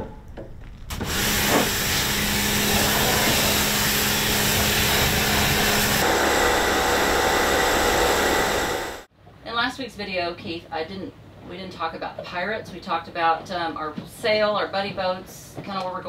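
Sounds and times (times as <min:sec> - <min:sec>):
windlass motor hum: 0:00.0 - 0:09.1
loud even hiss: 0:00.9 - 0:09.1.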